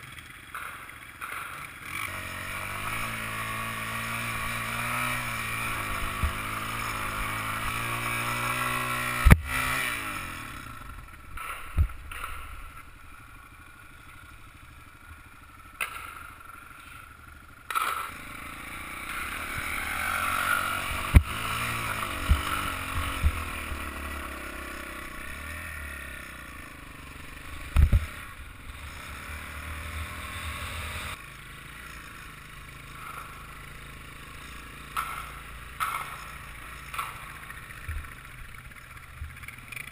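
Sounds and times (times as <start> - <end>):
motorcycle engine revving: 0.0 - 39.9
knocks and clatters: 0.4 - 2.0, 11.2 - 12.9, 32.9 - 39.9.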